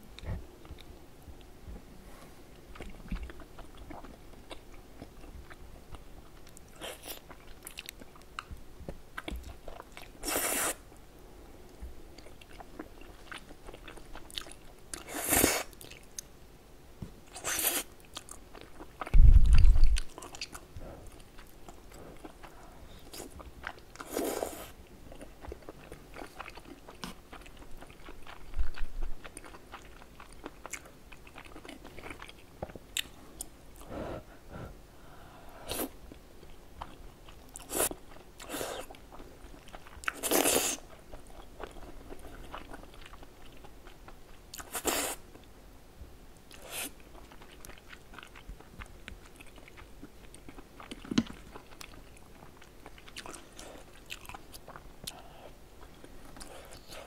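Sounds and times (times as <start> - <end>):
wet chewing: 17.3 - 33.9.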